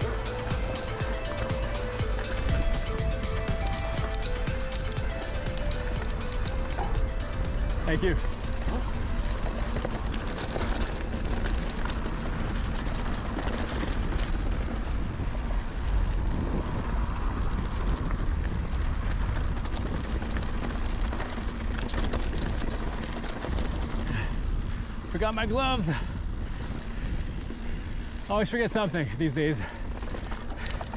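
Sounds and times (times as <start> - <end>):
bike rattling over bumps: 0.0 - 30.9
bike tyres rolling on dirt: 0.0 - 30.9
wind on microphone: 2.4 - 25.2.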